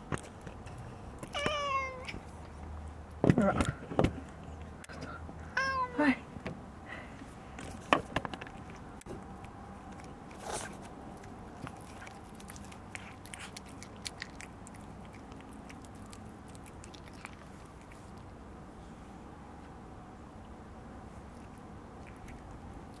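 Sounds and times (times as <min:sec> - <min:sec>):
cat meowing: 0:01.3 - 0:02.2, 0:05.6 - 0:06.0
cat crunching food: 0:07.6 - 0:18.4, 0:21.2 - 0:23.0.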